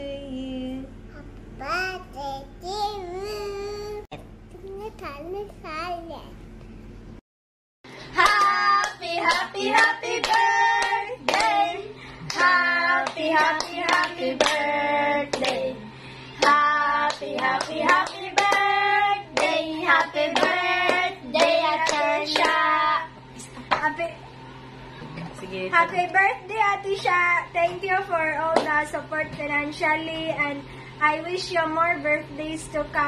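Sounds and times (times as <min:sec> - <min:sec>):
women and girl singing: 0:08.1 - 0:15.8, 0:16.4 - 0:23.2
hands clapping: 0:08.2 - 0:11.6.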